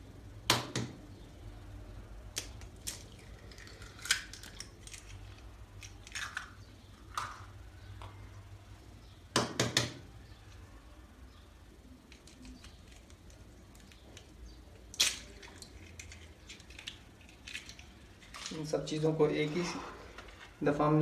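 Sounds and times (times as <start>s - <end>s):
eggshells cracking: 2.3s - 7.6s, 12.0s - 18.6s.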